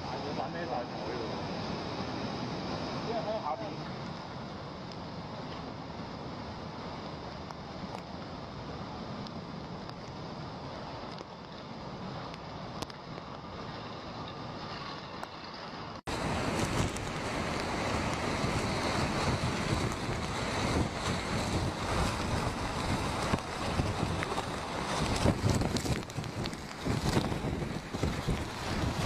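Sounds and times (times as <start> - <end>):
rushing water: 0.0 - 29.0
wind gusting on microphone: 0.0 - 29.0.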